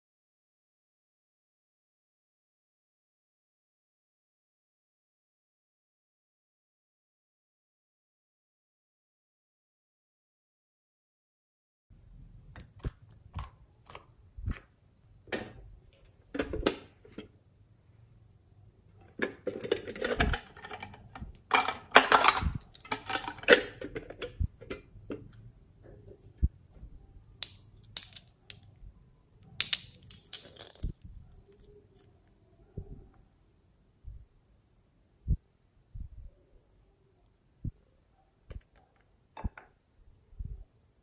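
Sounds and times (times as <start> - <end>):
cosmetics clattering and rustling: 19.0 - 26.3, 27.4 - 28.7, 29.6 - 32.1.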